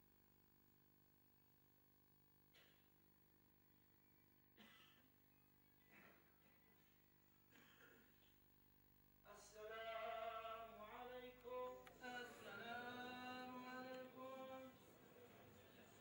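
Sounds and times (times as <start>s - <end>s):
man chanting unaccompanied: 9.3s - 15.1s.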